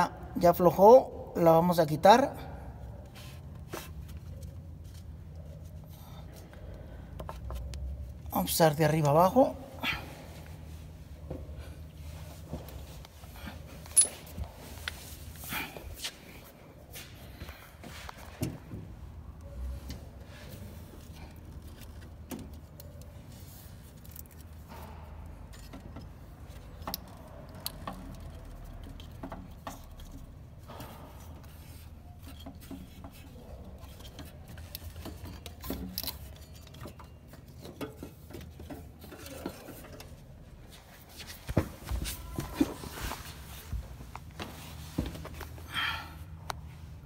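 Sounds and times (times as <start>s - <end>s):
metallic clicks and clinks: 13.9s - 14.3s.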